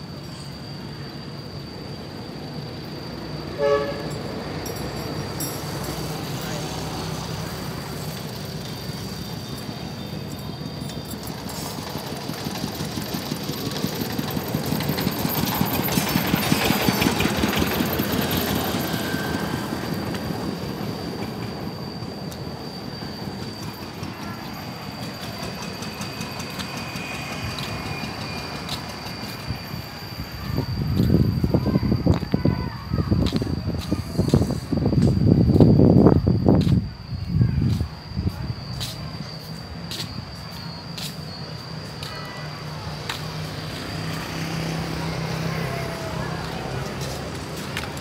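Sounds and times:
passing vehicle engine: 0:42.6 - 0:48.0.

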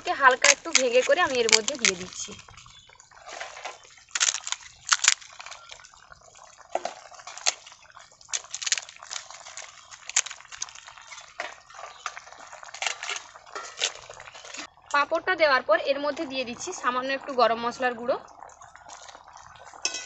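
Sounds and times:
papads crackling as broken: 0:00.0 - 0:14.7
wet liquid sounds: 0:00.0 - 0:15.1, 0:15.8 - 0:20.0.

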